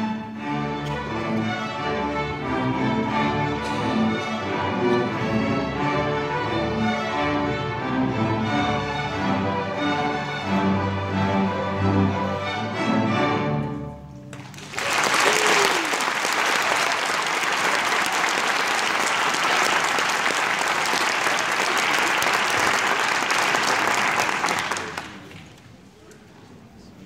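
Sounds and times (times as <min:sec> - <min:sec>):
audience applause: 0:14.3 - 0:25.6.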